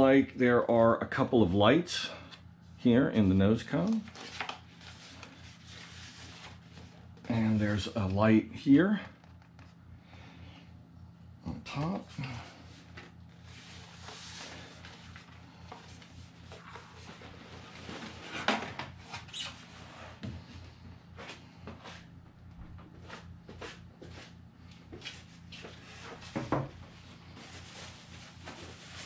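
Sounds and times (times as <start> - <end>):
styrofoam rubbing and squeaking: 19.1 - 19.8.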